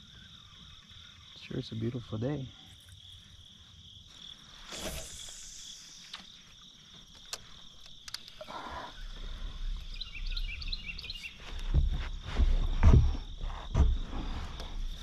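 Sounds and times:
high-pitched insect chorus: 0:00.0 - 0:15.0
small bird chirps: 0:08.1 - 0:11.6.

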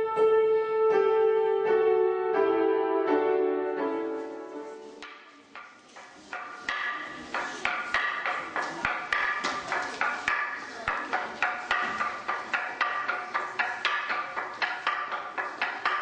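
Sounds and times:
wooden mallet knocking wooden board: 0:05.0 - 0:16.0.

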